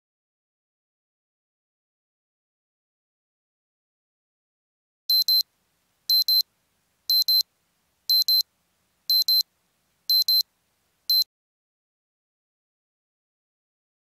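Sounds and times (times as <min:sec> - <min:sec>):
timer alarm double beeps: 0:05.1 - 0:05.4, 0:06.1 - 0:06.4, 0:07.1 - 0:07.4, 0:08.1 - 0:08.4, 0:09.1 - 0:09.4, 0:10.1 - 0:10.4.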